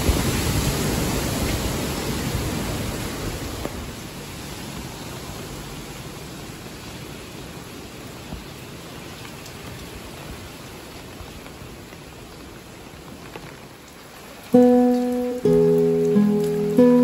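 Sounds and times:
rain falling on trees: 0.0s - 17.0s.

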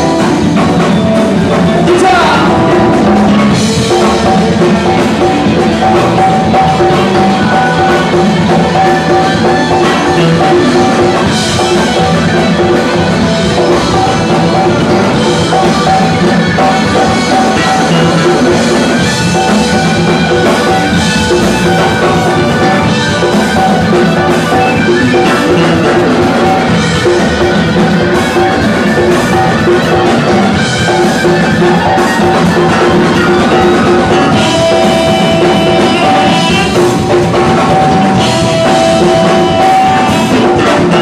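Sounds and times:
live funk band playing: 0.0s - 41.0s.

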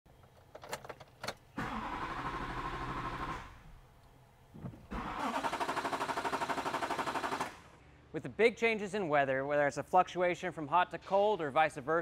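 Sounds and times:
diesel engine cranking: 1.6s - 3.6s, 4.9s - 7.6s.

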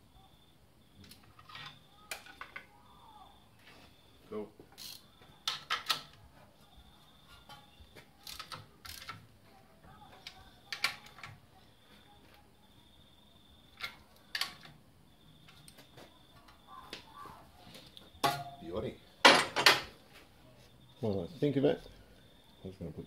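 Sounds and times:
hand tools and metal parts clicking: 4.7s - 6.2s, 7.3s - 9.3s.

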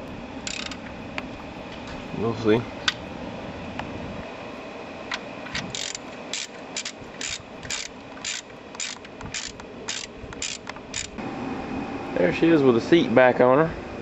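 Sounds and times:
ratchet wrench clicking: 0.4s - 0.8s, 5.6s - 11.2s.

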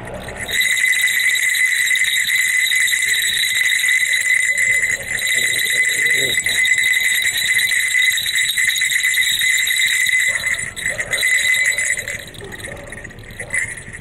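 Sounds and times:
small metal bells ringing: 0.0s - 14.0s.

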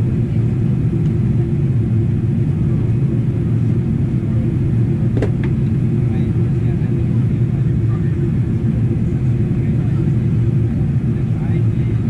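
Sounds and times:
aircraft cabin rumble: 0.0s - 12.0s.

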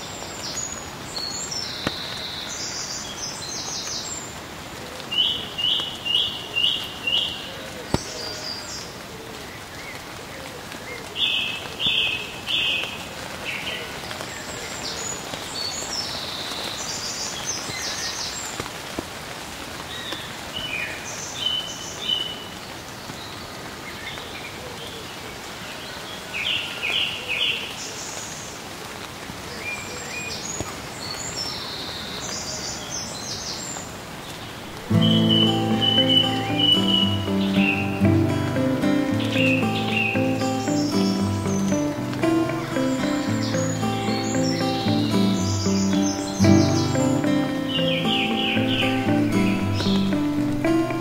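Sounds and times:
birds chirping: 5.2s - 9.0s, 34.3s - 51.0s
steady hiss: 34.3s - 51.0s.

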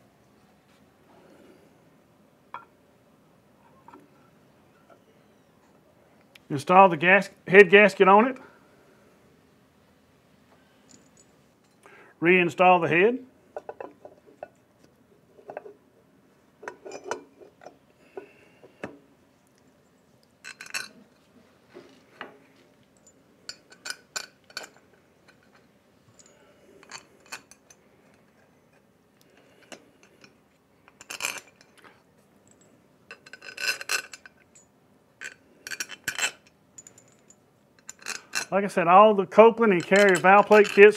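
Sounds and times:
metallic clinks and scrapes: 10.7s - 11.9s, 15.3s - 15.8s, 16.6s - 18.9s, 19.6s - 21.3s, 21.9s - 38.6s, 39.4s - 40.9s.

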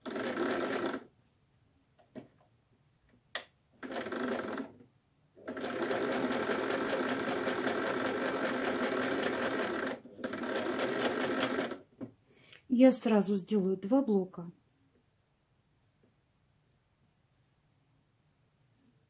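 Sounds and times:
sewing machine stitching: 0.0s - 1.1s, 3.8s - 4.8s, 5.4s - 11.8s.

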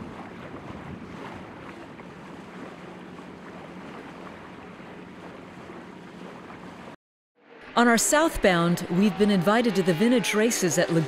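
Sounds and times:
wind rumbling on microphone: 0.0s - 5.8s
water noise: 0.0s - 11.0s
wind: 0.0s - 11.0s.

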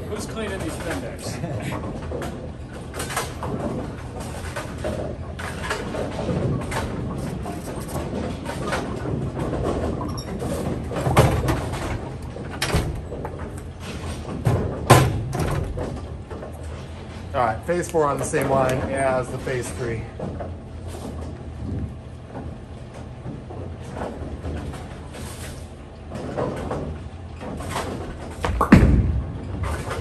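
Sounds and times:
low machinery hum: 0.0s - 30.0s
bowling balls knocking together: 0.1s - 17.3s, 25.9s - 30.0s.

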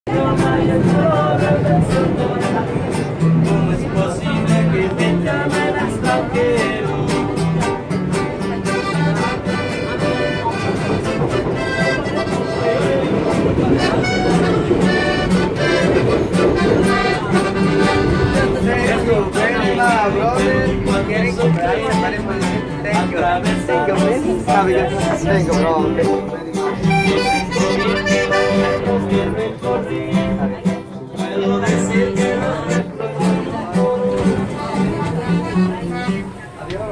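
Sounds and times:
mariachi band playing: 0.1s - 36.9s
strummed guitar: 0.1s - 36.9s
sustained accordion-like melody: 6.9s - 19.8s, 21.6s - 36.8s.

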